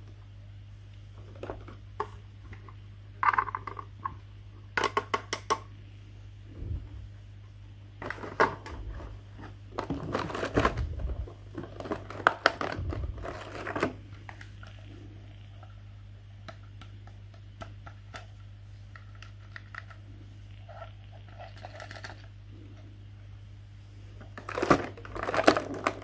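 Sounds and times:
steady low hum: 0:00.0 - 0:26.0
plastic packaging crinkling: 0:08.0 - 0:14.8, 0:24.2 - 0:26.0.

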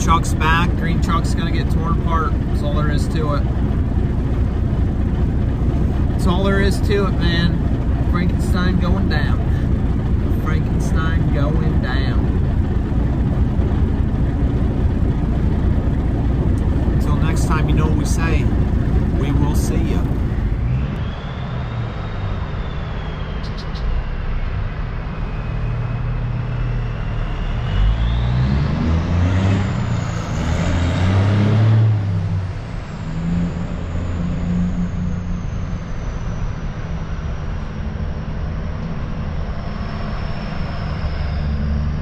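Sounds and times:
large truck engine running: 0:00.0 - 0:42.0
high thin whine: 0:32.1 - 0:42.0.

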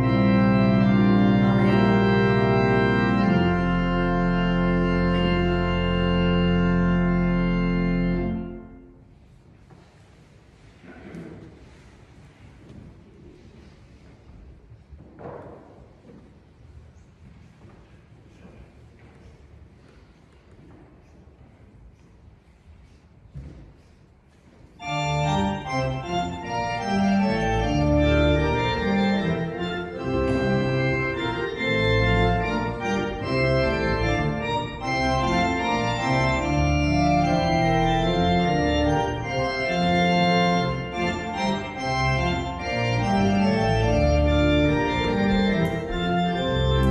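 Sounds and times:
organ chords: 0:00.0 - 0:09.2, 0:24.8 - 0:46.9.

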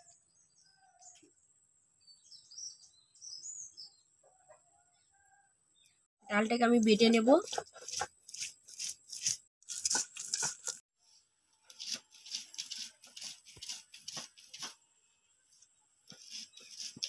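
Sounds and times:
stone grinding lentils on slab: 0:06.9 - 0:10.9, 0:11.6 - 0:14.8, 0:16.1 - 0:17.0.

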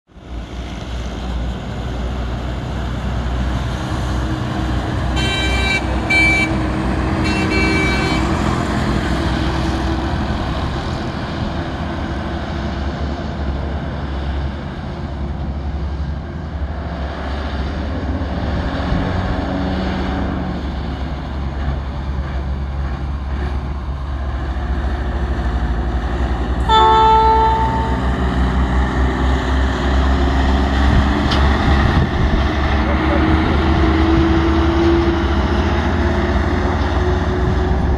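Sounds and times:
truck engine and road rumble: 0:00.1 - 0:37.9
truck horn blasts: 0:05.1 - 0:08.6, 0:26.6 - 0:28.7.

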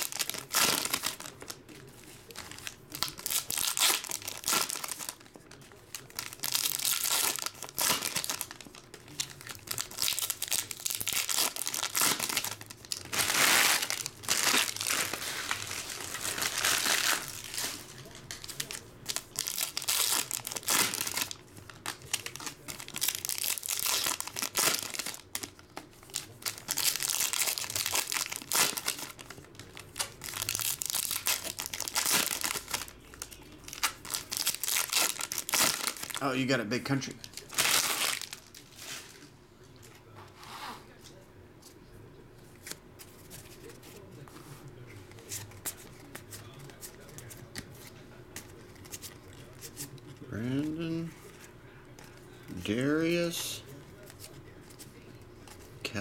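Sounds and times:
foil wrappers crinkling: 0:00.0 - 0:39.3.

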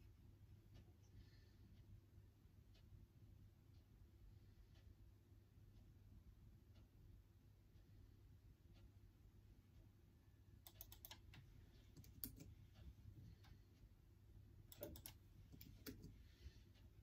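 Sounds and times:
keyboard key clicks: 0:14.7 - 0:16.1.

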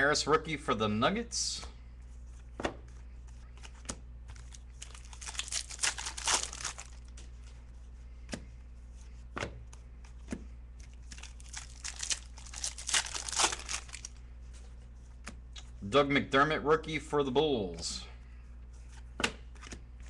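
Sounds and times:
cards crinkling rustle: 0:03.0 - 0:07.6, 0:10.0 - 0:15.3.

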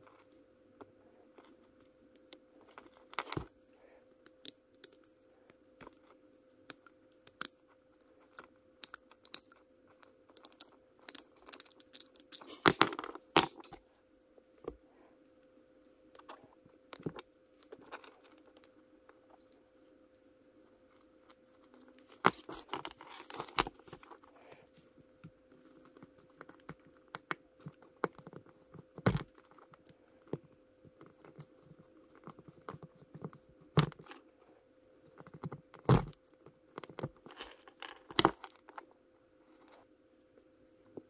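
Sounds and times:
faint steady hum: 0:00.0 - 0:41.0
plastic parts clicking and scraping: 0:06.7 - 0:13.8.

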